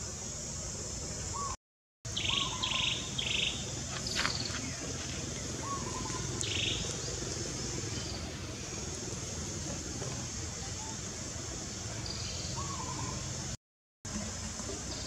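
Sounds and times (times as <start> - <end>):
birds chirping: 1.1 - 13.6
high-pitched insect drone: 2.1 - 13.6.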